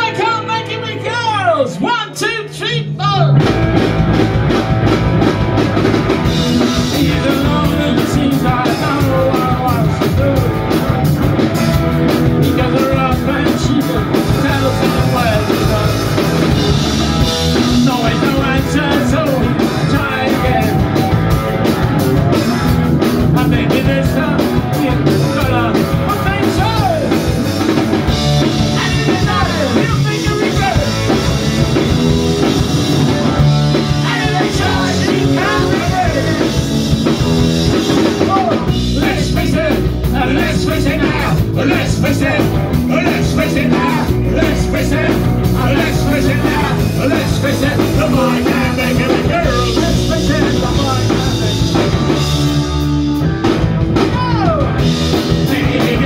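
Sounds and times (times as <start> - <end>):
punk rock band playing: 0.0 - 56.0
man singing: 6.4 - 10.8, 12.3 - 21.3, 23.2 - 27.5, 28.4 - 32.0, 33.6 - 37.2, 38.0 - 52.8, 54.0 - 56.0.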